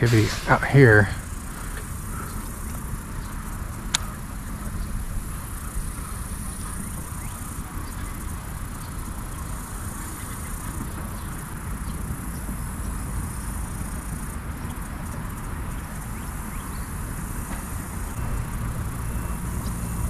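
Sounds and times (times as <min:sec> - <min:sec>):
high-pitched hiss: 0:00.0 - 0:03.8.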